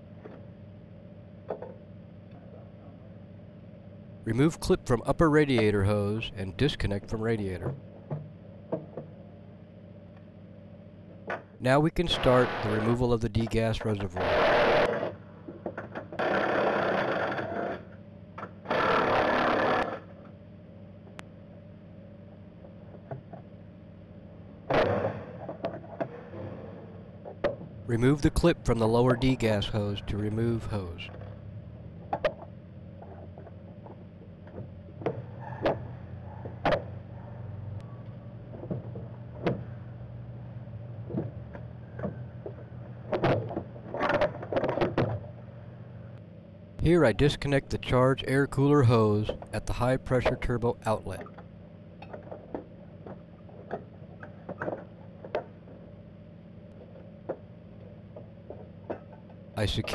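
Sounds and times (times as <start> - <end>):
steady low hum: 0.0 - 59.9.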